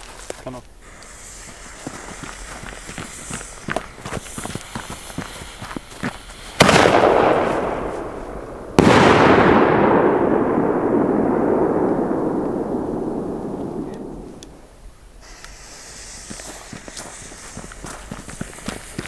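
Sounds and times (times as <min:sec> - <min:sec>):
light crackling: 0:00.0 - 0:19.0
rolling echo: 0:03.9 - 0:15.0
firecracker bangs: 0:04.2 - 0:17.6.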